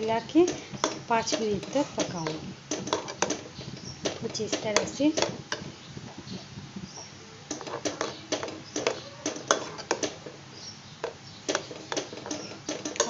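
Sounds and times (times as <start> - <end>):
metal spoon scraping a pan: 0.0 - 5.8, 7.5 - 10.4.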